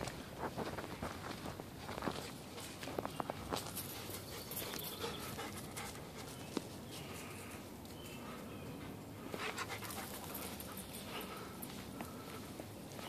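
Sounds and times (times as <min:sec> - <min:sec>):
dog panting: 0:03.6 - 0:06.4, 0:08.8 - 0:12.3.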